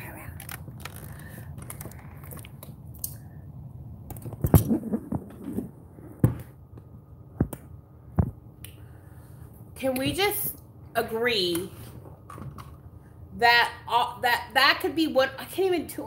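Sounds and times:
phone handling rubbing and rustling: 0.2 - 2.6, 4.1 - 6.5.

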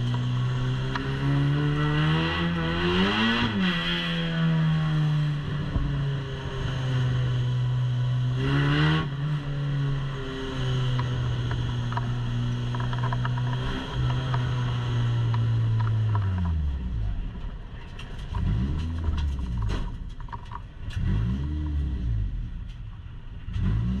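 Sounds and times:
race car engine droning: 0.0 - 24.0
rattles and clicks inside car: 10.8 - 24.0.

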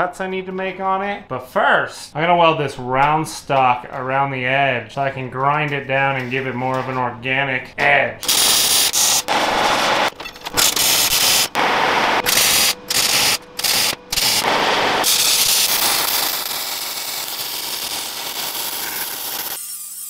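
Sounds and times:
welding arc sizzling: 8.2 - 20.0.

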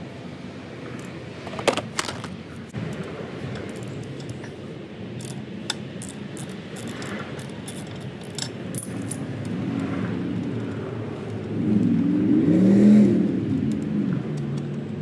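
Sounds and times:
steady low rumble: 0.0 - 15.0
metallic clicks and clinks: 2.9 - 11.4.

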